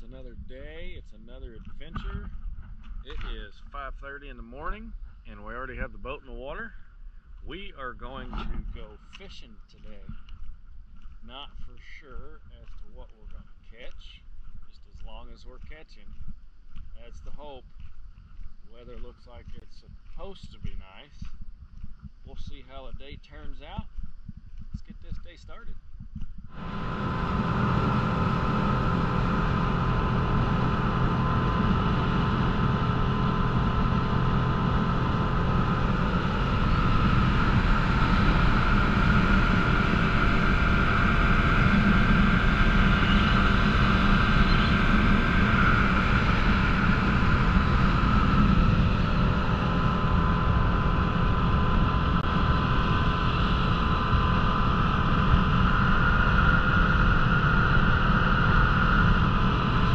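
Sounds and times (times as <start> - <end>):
motorboat engine running: 26.4 - 59.9.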